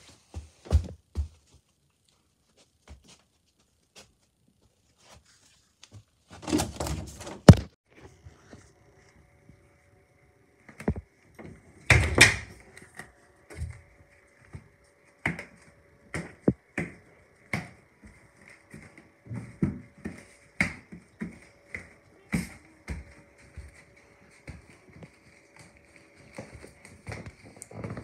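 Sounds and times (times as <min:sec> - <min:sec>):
footsteps on hardwood floor: 0:00.0 - 0:01.8, 0:18.1 - 0:28.0.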